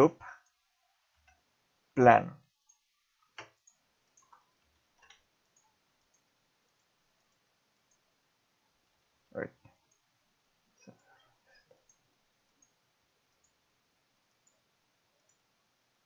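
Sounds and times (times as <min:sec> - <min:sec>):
faint mouse clicks: 0:02.6 - 0:08.1, 0:14.3 - 0:15.5.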